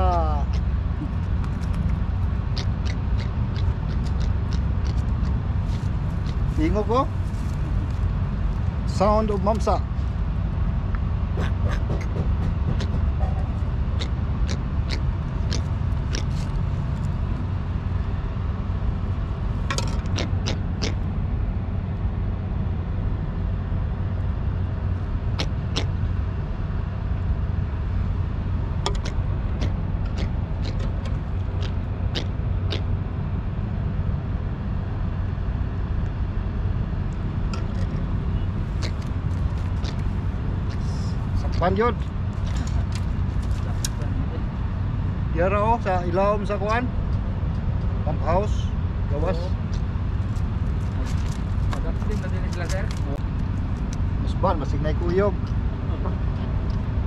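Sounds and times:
steady low rumble: 0.0 - 57.0
fish making croaking clicks: 0.4 - 5.4, 14.0 - 16.5, 19.7 - 21.0, 28.8 - 32.9, 38.7 - 40.8.

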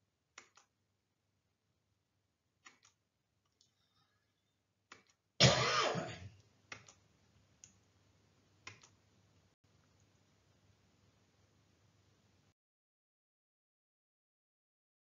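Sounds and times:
person coughing: 5.4 - 6.3.

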